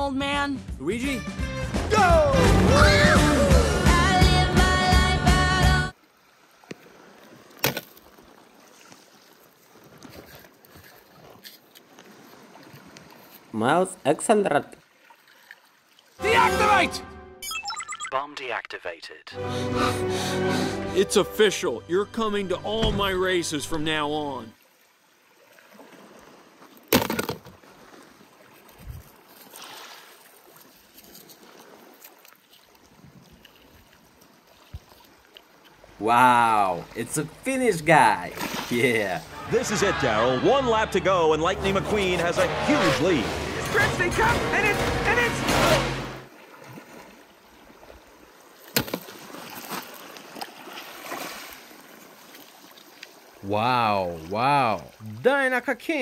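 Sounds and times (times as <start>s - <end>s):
waves lapping on pebble beach: 25.2s - 36.0s, 42.7s - 53.5s.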